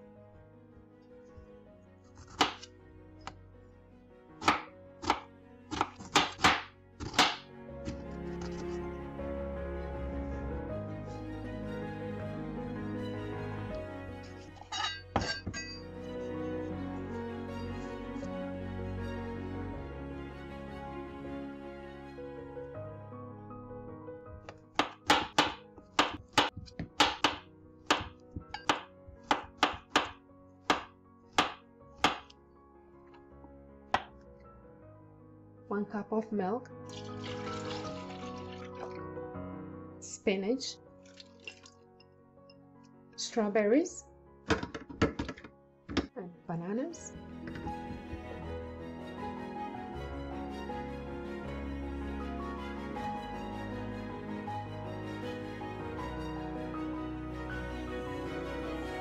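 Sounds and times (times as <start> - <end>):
faint background music: 0.0 - 59.0
knife knocking on cutting board: 24.4 - 30.1.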